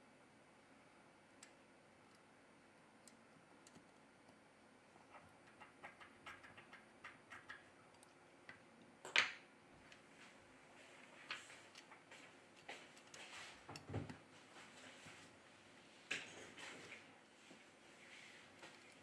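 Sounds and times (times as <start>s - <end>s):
plastic tool clicking and tapping: 5.1s - 9.4s.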